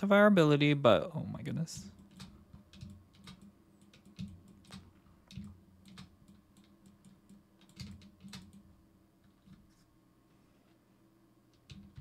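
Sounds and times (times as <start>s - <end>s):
computer keyboard and mouse clicks: 1.9s - 9.8s, 11.5s - 12.0s.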